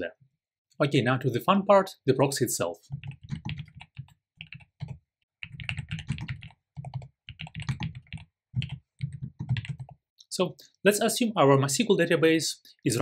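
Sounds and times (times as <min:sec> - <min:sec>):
typing on computer keyboard: 0:02.9 - 0:10.0.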